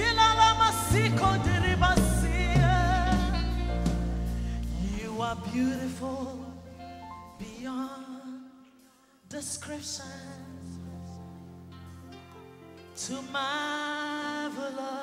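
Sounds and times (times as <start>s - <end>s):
sustained instrumental accompaniment: 0.0s - 5.6s
woman singing gospel song: 0.0s - 6.7s, 7.3s - 10.5s, 13.0s - 15.0s.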